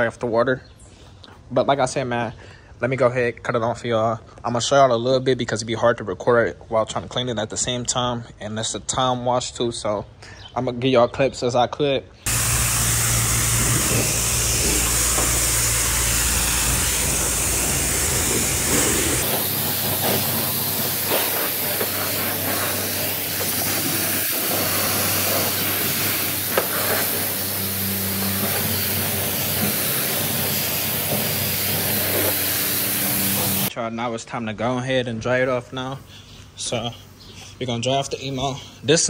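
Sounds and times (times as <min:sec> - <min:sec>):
pressure washer spraying car: 0:12.3 - 0:33.7.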